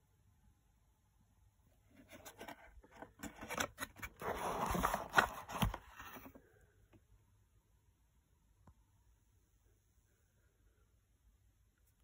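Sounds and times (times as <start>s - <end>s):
cardboard and paper rustling: 1.9s - 6.5s.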